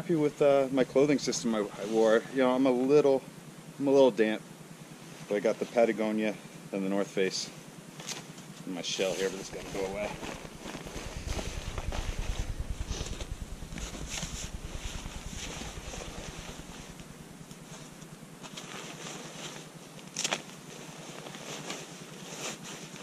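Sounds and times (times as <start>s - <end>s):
fabric and gear rustling: 9.0s - 12.8s
wind rumble on microphone: 9.4s - 18.1s.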